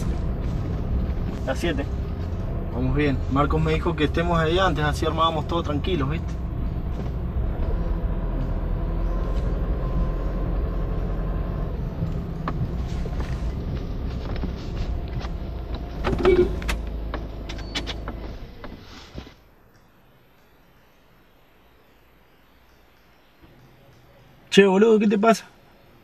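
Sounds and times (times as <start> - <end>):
car engine and road rumble: 0.0 - 26.0
clicks and knocks in car cabin: 12.3 - 18.8.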